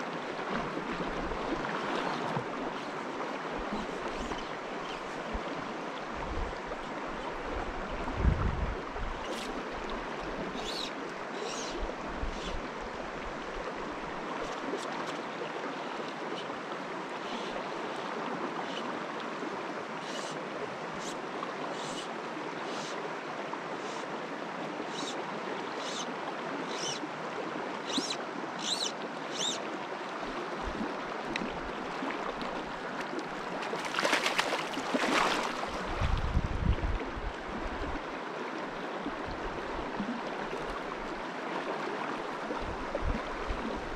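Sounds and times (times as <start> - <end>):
stream running over rocks: 0.0 - 43.9
splash at water surface: 33.8 - 35.6.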